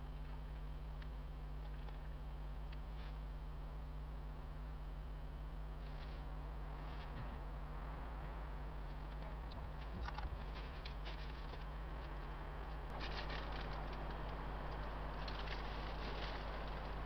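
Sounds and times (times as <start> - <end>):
charcoal crackling: 10.4 - 17.0.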